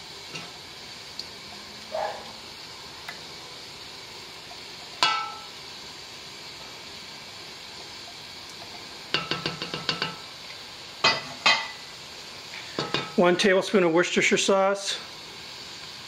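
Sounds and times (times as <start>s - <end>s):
glass clinking on metal pot: 5.0s - 5.5s.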